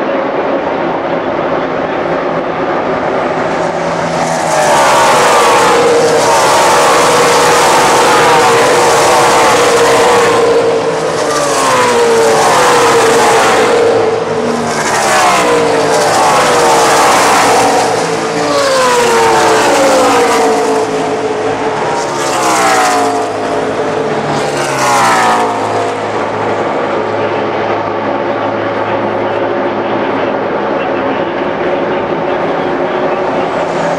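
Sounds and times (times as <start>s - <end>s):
distant engine drone: 0.0s - 33.9s
race trucks passing at speed: 0.0s - 33.9s.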